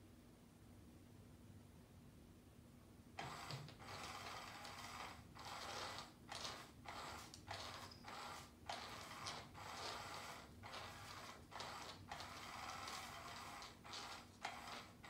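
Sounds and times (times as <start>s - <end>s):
small geared motor whirring: 3.2s - 15.0s.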